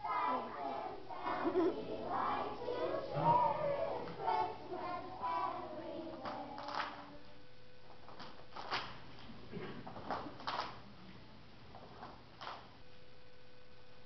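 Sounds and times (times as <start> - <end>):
children singing together: 0.0 - 7.2.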